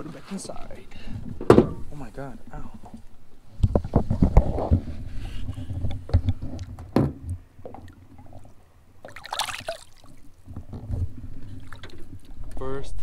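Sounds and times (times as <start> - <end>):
water splashing: 7.6 - 10.4, 11.4 - 12.5.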